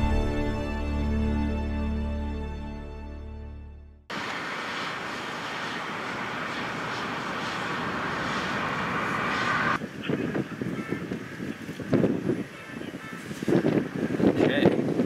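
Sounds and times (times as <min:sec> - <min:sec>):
steady rushing wind: 0:04.1 - 0:15.0
wind gusts buffeting microphone: 0:04.2 - 0:15.0.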